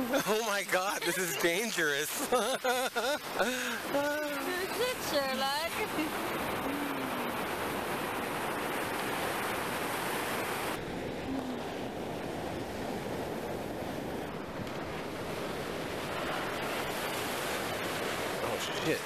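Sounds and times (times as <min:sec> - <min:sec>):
ocean surf washing ashore: 0:00.0 - 0:19.0
wind on microphone: 0:03.8 - 0:18.4.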